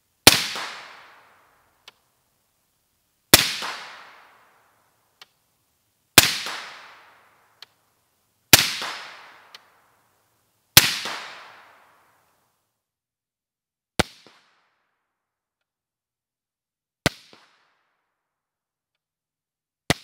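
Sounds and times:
suppressed rifle shots: 0.2 - 1.2, 3.3 - 4.5, 6.2 - 7.2
faint tick: 5.2 - 5.4.

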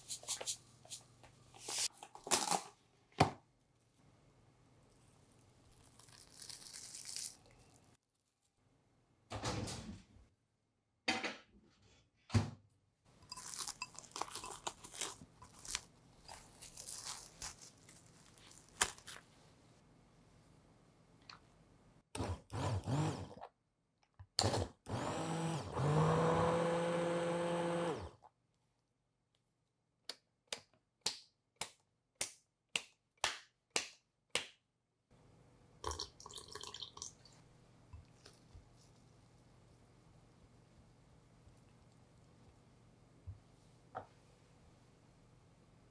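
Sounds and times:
cling film crinkling: 5.3 - 8.4, 13.4 - 19.3
puree dripping into glass bowl: 35.8 - 37.4.

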